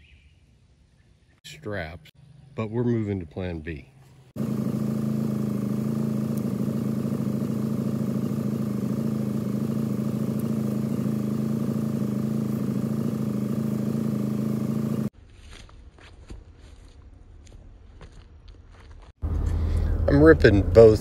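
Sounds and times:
engine idling: 4.4 - 15.1.

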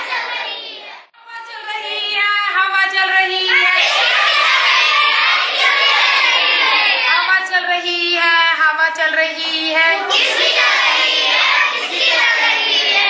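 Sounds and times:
group singing a song: 0.0 - 2.3, 3.0 - 7.5, 9.3 - 13.0.

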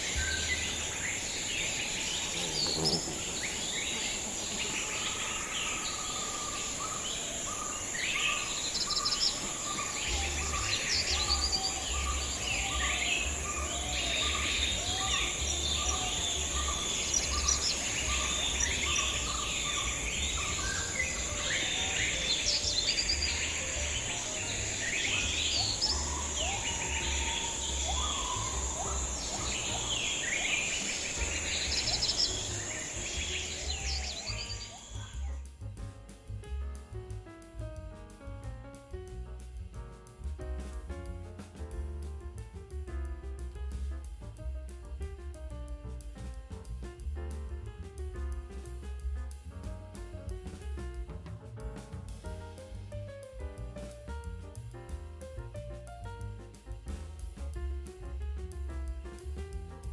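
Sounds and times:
high-pitched insect drone: 0.0 - 35.3
birds chirping and calling: 0.0 - 35.4
low rumble: 8.4 - 55.8.

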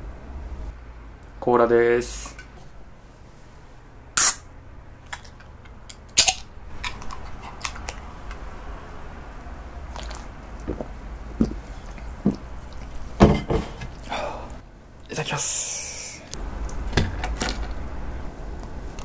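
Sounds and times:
can opening crack and hiss: 4.2 - 4.5
swallowing gulps: 9.9 - 13.2.

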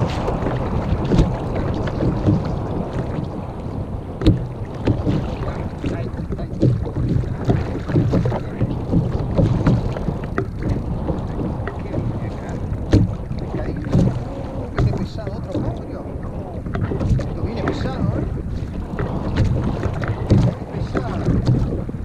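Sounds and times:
waves lapping against kayak hull: 0.0 - 22.0
wind buffeting microphone: 0.0 - 22.0
short knocks: 4.2 - 15.9, 19.0 - 21.8.

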